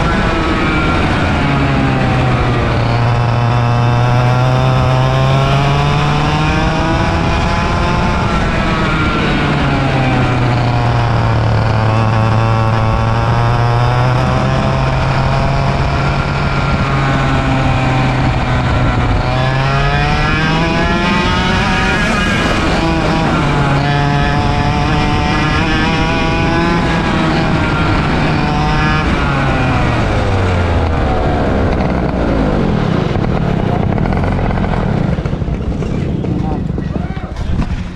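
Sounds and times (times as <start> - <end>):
kart engine revving: 0.0 - 37.9.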